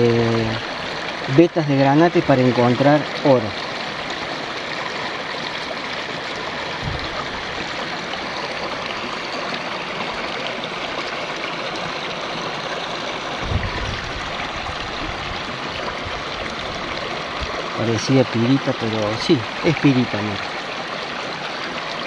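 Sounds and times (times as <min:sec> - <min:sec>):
shallow river water running: 0:00.0 - 0:22.0
dull low thumps: 0:06.8 - 0:07.2, 0:13.4 - 0:15.4.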